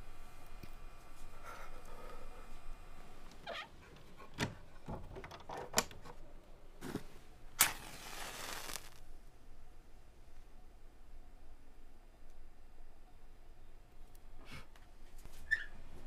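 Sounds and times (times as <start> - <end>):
match struck flaring: 6.8 - 9.1.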